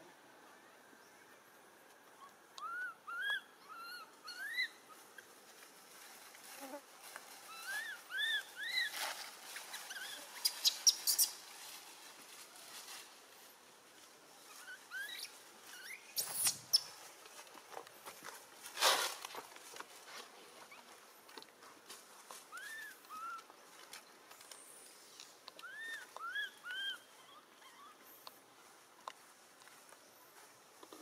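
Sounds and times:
small animal chirping: 9.7 - 11.4, 14.5 - 17.0
brief rustle: 18.6 - 20.3.

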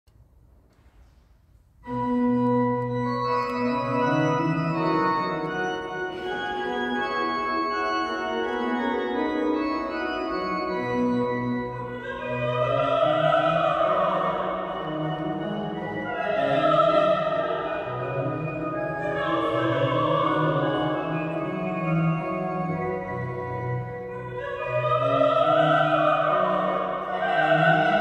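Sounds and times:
pipe organ playing: 1.8 - 28.0
soprano singing with vibrato: 11.7 - 22.3, 24.0 - 28.0.

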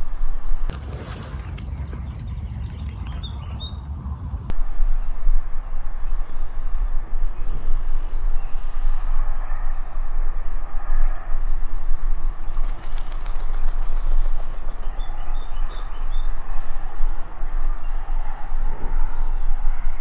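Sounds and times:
wind rumble on microphone: 0.0 - 20.0
songbirds chirping: 0.7 - 4.4.

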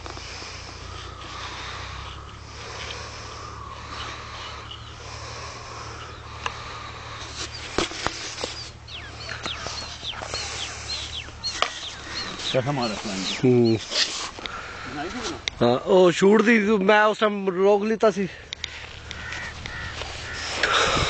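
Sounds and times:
close breathing: 0.0 - 15.6, 18.2 - 21.0
bird chirping calls: 0.0 - 15.8, 18.4 - 21.0
steady low hum: 0.0 - 15.9.

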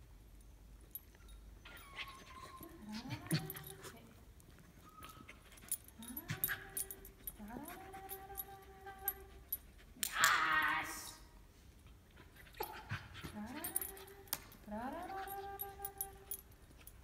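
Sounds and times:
dog whining: 1.0 - 4.0, 4.6 - 9.6, 12.3 - 17.0.

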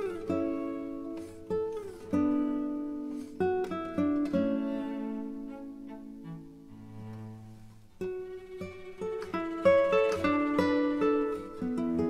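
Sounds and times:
acoustic guitar music: 0.0 - 12.0.

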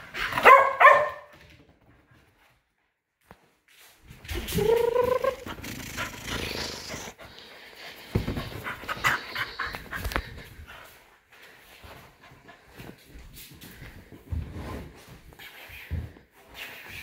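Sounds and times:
rustling and scuffling on cushions: 8.0 - 17.0.

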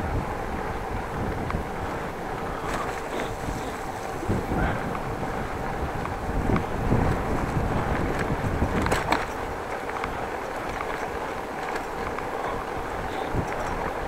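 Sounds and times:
bicycle tyres rumbling over bricks: 0.0 - 14.0
wind buffeting microphone: 0.0 - 14.0
small rattles and knocks: 6.0 - 14.0.

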